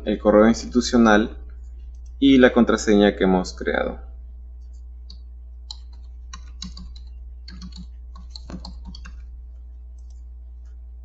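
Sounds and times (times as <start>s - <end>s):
low electrical hum: 0.0s - 11.0s
keyboard typing: 5.7s - 9.3s.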